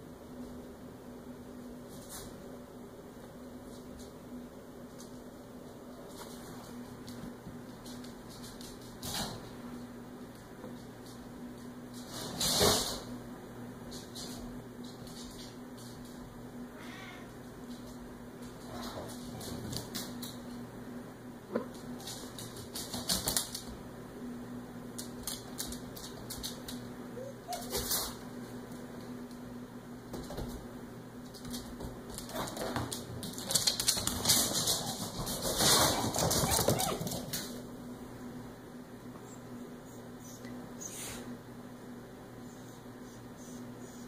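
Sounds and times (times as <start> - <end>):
paws clicking on wood floor: 4.9 - 9.4, 17.6 - 20.6, 21.6 - 23.8, 24.9 - 29.5, 31.2 - 37.6.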